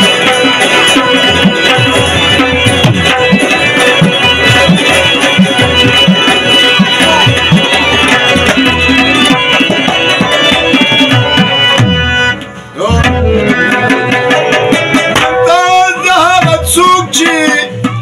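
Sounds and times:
harmonium held notes: 0.0 - 17.4
rubab: 0.0 - 18.0
tabla rhythm: 0.0 - 18.0
man singing: 12.8 - 18.0.

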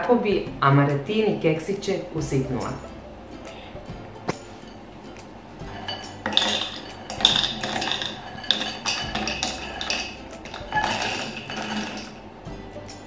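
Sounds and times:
biscuits rattling into plastic bowl: 5.9 - 12.2.

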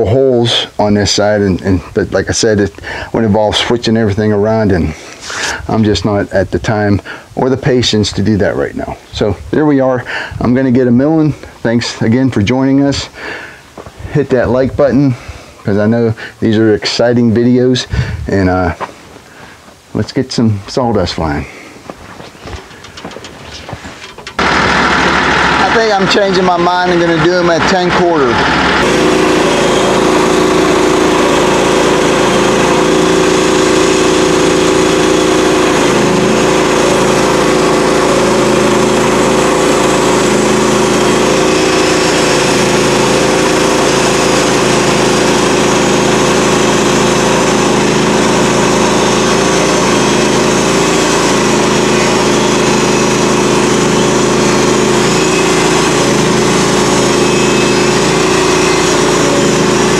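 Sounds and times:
band sawmill engine running: 0.0 - 18.8, 22.2 - 59.9
saw blade cutting log hiss: 5.0 - 5.7.

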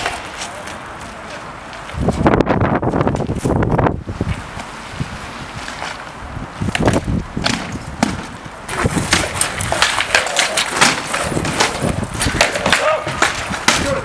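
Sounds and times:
swords knocking on wooden shields: 9.1 - 14.0.

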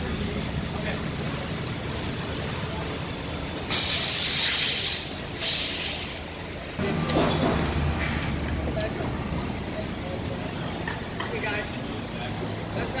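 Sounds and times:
buses idling: 0.0 - 13.0
bus air brakes hissing: 3.6 - 6.7.

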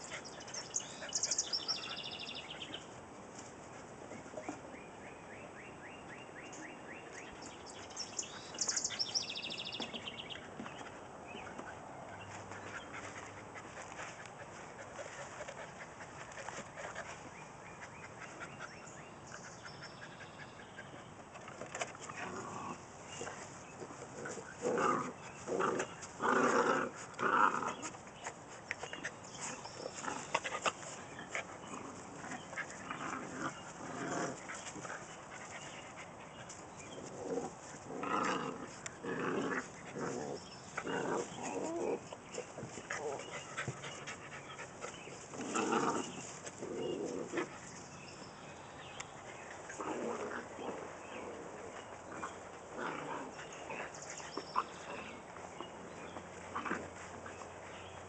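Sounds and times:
puppies growling: 22.0 - 28.1, 29.0 - 47.8, 49.2 - 58.0.

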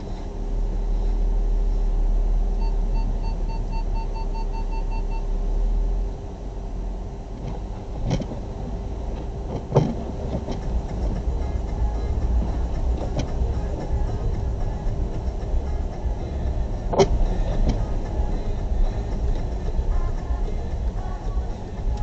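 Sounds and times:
car engine rumbling: 0.0 - 22.0
quick electronic beeps: 2.6 - 5.3.

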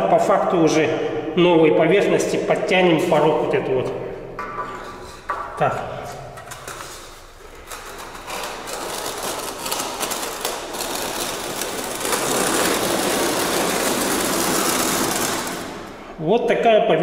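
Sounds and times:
screed rule scraping mortar: 4.5 - 5.7, 6.4 - 16.2.

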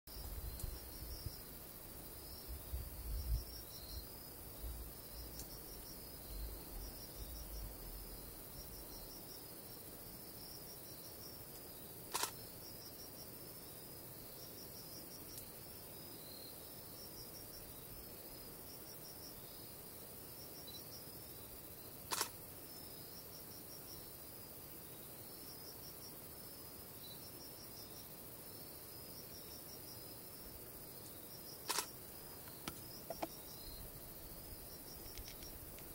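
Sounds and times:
insect chirping: 0.1 - 35.9
camera shutter clicks: 12.1 - 12.4, 22.1 - 22.4, 31.7 - 31.9.

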